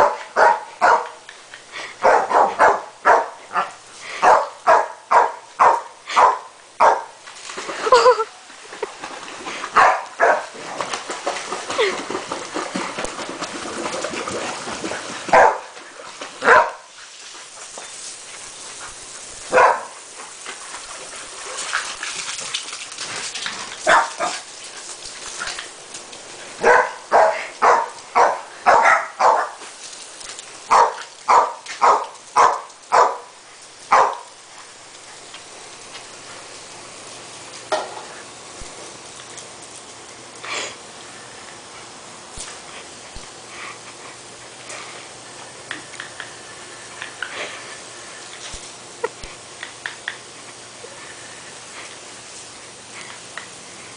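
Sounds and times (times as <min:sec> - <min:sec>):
dog barking: 0:00.0 - 0:01.2, 0:02.0 - 0:07.1, 0:09.8 - 0:10.5, 0:15.3 - 0:15.7, 0:16.4 - 0:16.9, 0:19.5 - 0:19.9, 0:23.9 - 0:24.4, 0:26.6 - 0:29.6, 0:30.7 - 0:33.3, 0:33.9 - 0:34.2
garden hose water hissing: 0:00.0 - 0:53.9.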